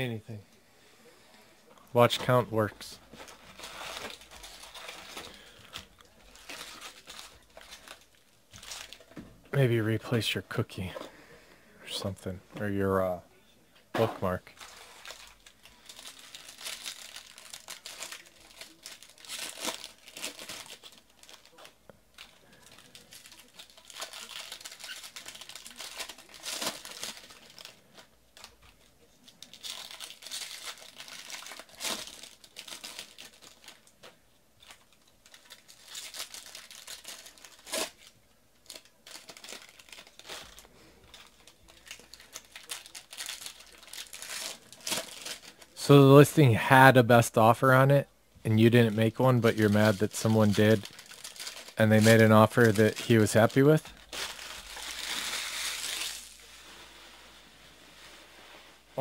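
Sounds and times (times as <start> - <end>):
foil wrappers tearing and crinkling: 3.2 - 9.1, 14.2 - 45.8, 48.6 - 57.2.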